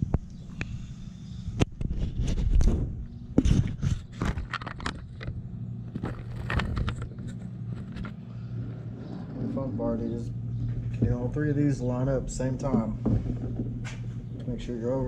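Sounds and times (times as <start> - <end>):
steady low hum: 0.0 - 15.0
metal parts clicking and scraping: 3.4 - 9.6.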